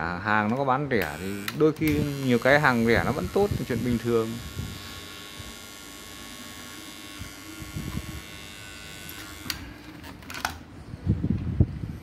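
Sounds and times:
soldering gun buzzing: 0:01.0 - 0:10.2.

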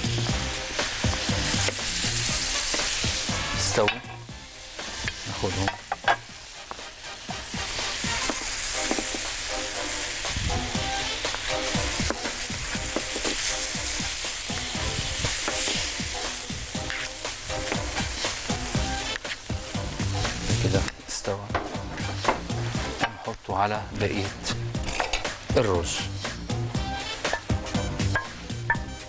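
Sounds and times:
squid sizzling on a grill plate: 0:00.0 - 0:21.0
wooden spatula scraping: 0:04.8 - 0:19.5.

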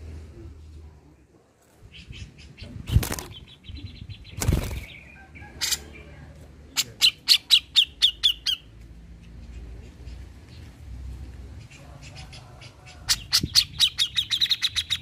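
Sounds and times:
bird chattering trill: 0:06.8 - 0:08.7, 0:13.1 - 0:15.0.

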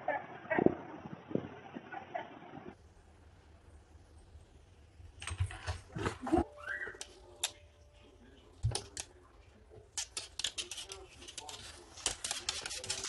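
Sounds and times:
cat claws scratching and clicking: 0:08.6 - 0:13.0.

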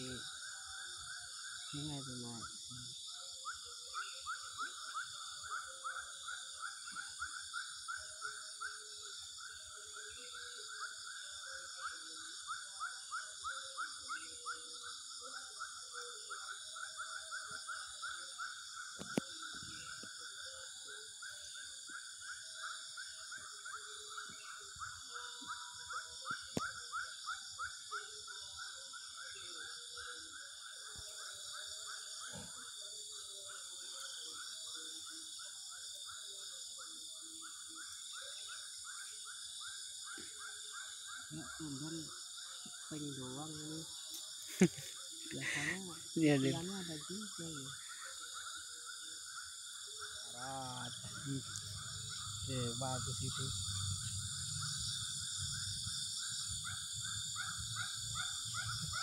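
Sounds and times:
rhythmic pulsing animal call: 0:39.8 - 0:59.0
high-pitched insect buzz: 0:42.9 - 0:46.8.

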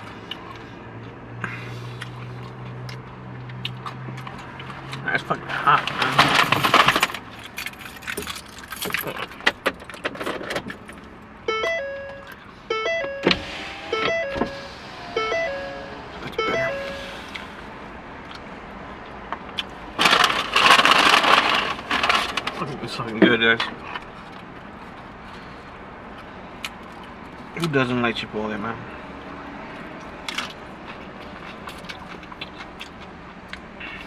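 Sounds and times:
keys jangling and clinking: 0:07.0 - 0:10.0
electronic tune of short notes: 0:11.5 - 0:17.1
air-conditioning fan rushing: 0:12.7 - 0:18.8.

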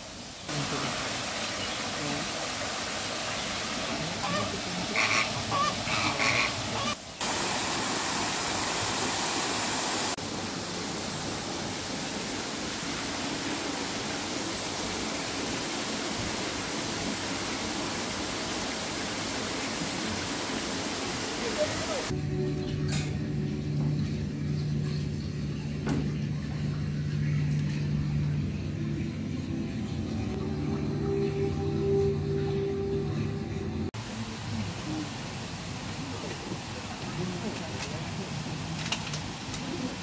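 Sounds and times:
outdoor hiss: 0:00.0 - 0:22.2, 0:33.9 - 0:40.0
waterfall splashing into pond: 0:00.0 - 0:22.2, 0:33.9 - 0:40.0
flamingos honking: 0:03.4 - 0:07.0.

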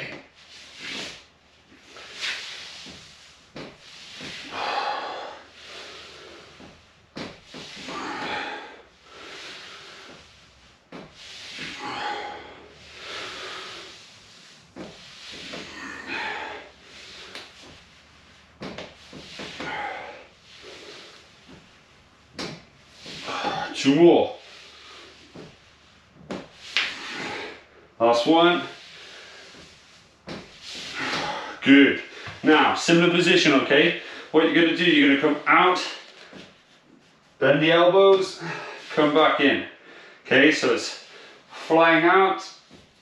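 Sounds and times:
man breathing hard: 0:04.0 - 0:06.8, 0:07.6 - 0:10.6, 0:11.2 - 0:17.8, 0:19.2 - 0:21.6, 0:39.8 - 0:40.2.

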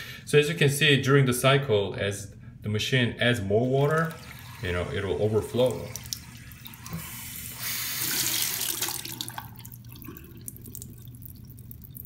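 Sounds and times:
water trickling into sink: 0:03.6 - 0:12.0
tap water splashing into cup: 0:03.7 - 0:04.6, 0:08.0 - 0:12.0.

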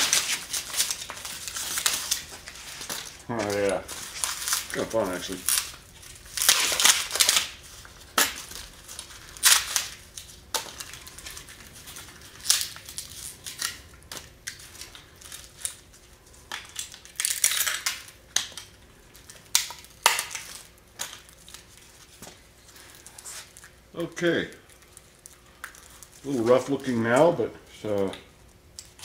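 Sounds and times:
mold cracking and snapping: 0:16.4 - 0:21.6.

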